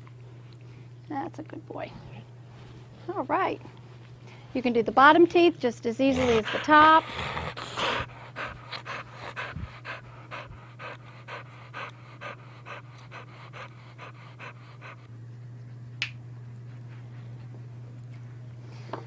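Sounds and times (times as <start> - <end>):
steady low hum: 0.0 - 19.0
dog panting: 6.0 - 15.1.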